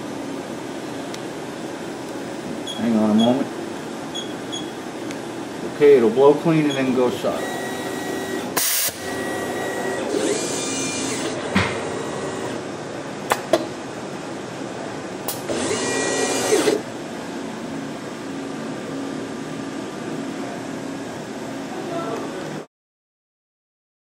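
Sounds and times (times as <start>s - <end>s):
steady machine hum: 0.0s - 22.7s
whir of motors: 7.4s - 12.6s, 15.3s - 16.8s
air blast: 8.6s - 9.0s.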